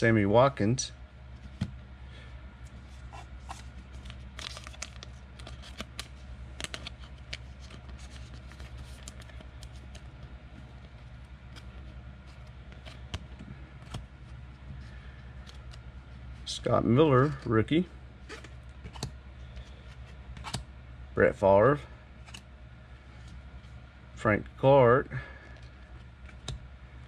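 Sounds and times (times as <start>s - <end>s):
steady low hum: 0.0s - 27.0s
cards clicking and scraping: 3.1s - 15.8s, 18.2s - 20.7s, 22.2s - 22.5s.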